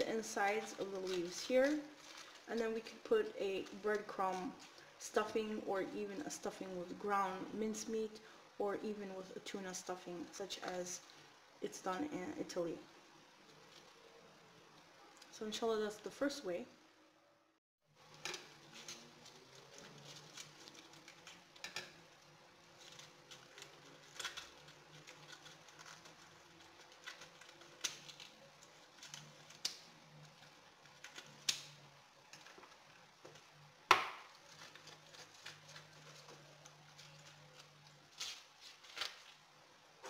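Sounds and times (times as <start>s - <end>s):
artichoke leaves crackling: 0.0s - 8.2s, 8.8s - 16.5s, 17.9s - 40.0s
artichoke leaf snapping: 31.1s - 31.8s.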